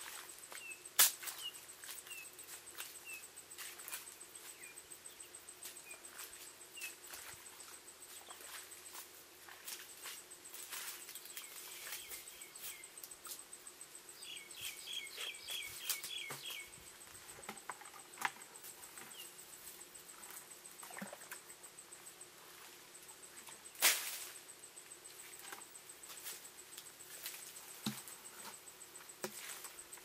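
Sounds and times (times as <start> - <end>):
high insect whine: 0.0 - 30.0
bird chirping: 11.1 - 13.0, 14.1 - 17.0.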